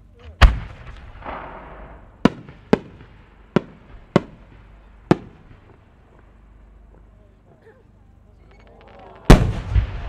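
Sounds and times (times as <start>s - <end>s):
deep firework boom: 0.4s - 5.7s, 9.3s - 10.0s
sharp firework bangs: 0.4s - 5.8s, 9.3s - 10.0s.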